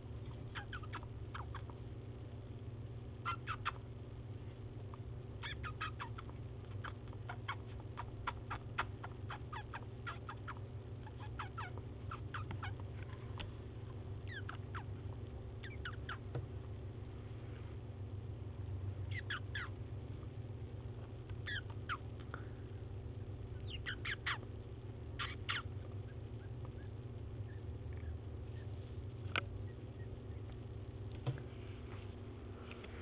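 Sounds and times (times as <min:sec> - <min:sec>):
steady low hum: 0:00.0 - 0:33.0
mouse ticks and chirps: 0:00.2 - 0:01.8, 0:03.3 - 0:03.9, 0:04.8 - 0:12.9, 0:13.9 - 0:16.4, 0:19.1 - 0:20.3, 0:21.1 - 0:22.2, 0:23.5 - 0:24.6, 0:25.2 - 0:30.7.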